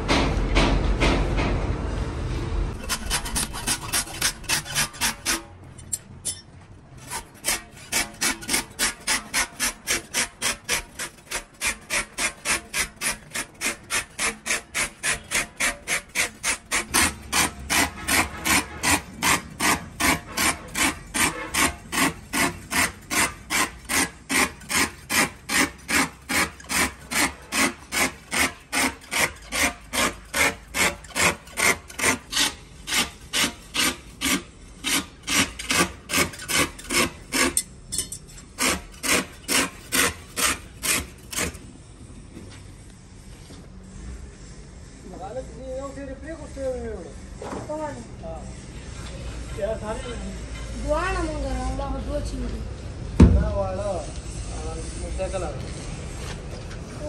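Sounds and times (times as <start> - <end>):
hand tool scraping tyre: 2.7 - 42.7.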